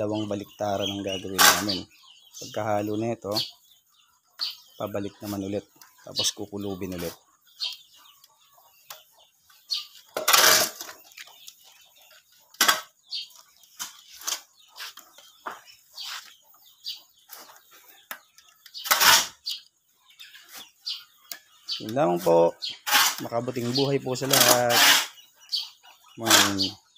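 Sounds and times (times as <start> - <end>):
shovel scraping cement floor: 1.4 - 1.8, 10.2 - 10.9, 18.8 - 19.4, 22.8 - 23.3, 24.2 - 25.2, 26.2 - 26.6
shovel scooping sawdust: 18.8 - 19.4, 22.8 - 25.2, 26.2 - 26.7.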